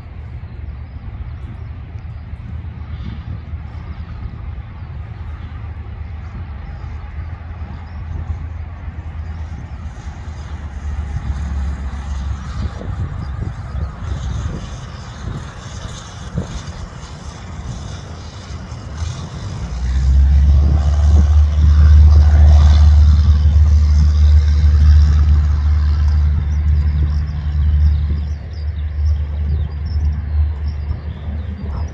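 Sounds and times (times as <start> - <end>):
airplane engine drone: 0.0 - 31.9.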